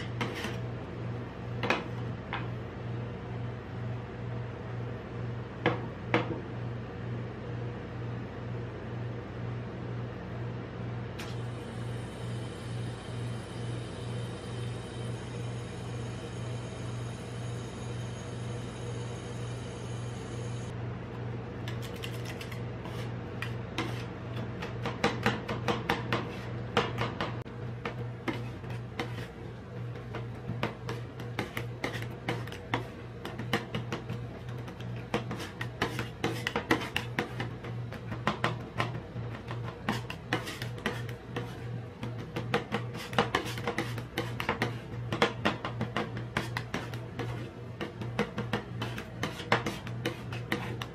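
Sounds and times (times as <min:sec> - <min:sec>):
metal spatulas chopping and scraping: 0:00.0 - 0:00.6, 0:21.7 - 0:29.4, 0:30.0 - 0:50.9
steady low hum: 0:00.0 - 0:50.9.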